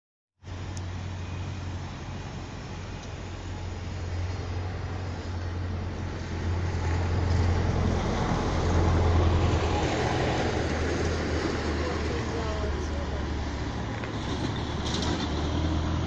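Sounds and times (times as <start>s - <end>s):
low outdoor rumble: 0.4s - 16.0s.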